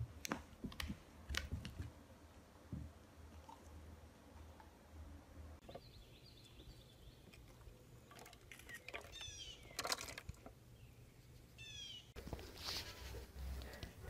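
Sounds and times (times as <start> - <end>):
plastic bottles and crate handled: 7.3 - 10.6
faint high chirping calls: 8.6 - 10.0, 10.7 - 12.2.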